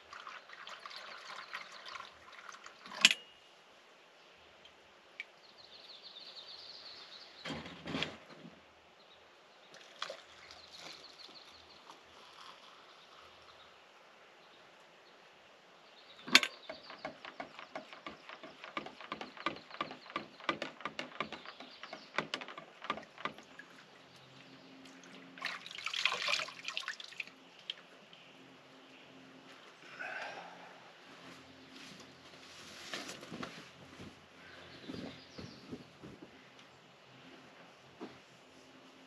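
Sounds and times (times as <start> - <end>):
water splashing: 0.0 - 3.0, 24.8 - 27.9
camp gear clicking and tapping: 16.2 - 23.6.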